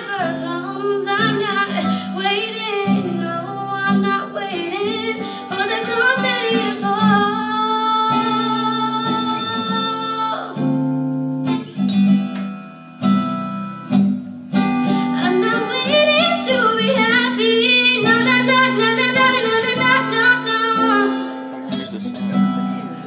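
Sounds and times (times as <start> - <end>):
woman singing: 0.0 - 10.8, 14.9 - 21.8
strummed acoustic guitar: 0.0 - 23.0.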